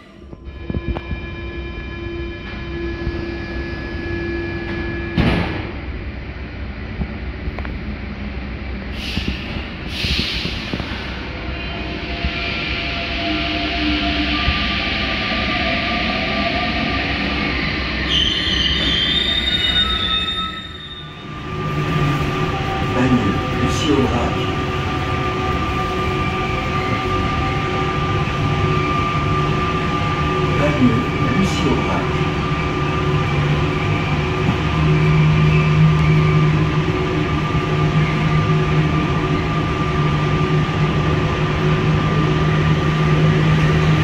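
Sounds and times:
train rumble: 0:00.0 - 0:44.0
high squeal: 0:11.7 - 0:24.6.

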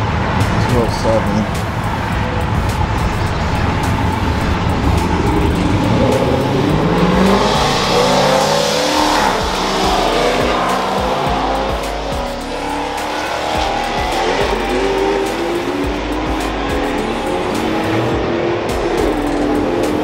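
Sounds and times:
car engine revving hard: 0:00.0 - 0:20.0.

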